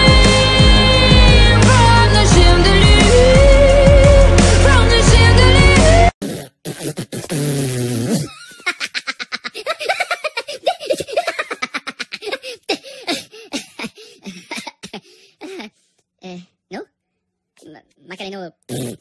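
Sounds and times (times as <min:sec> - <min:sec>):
high-pitched cartoon laughter: 0:08.3 - 0:12.8.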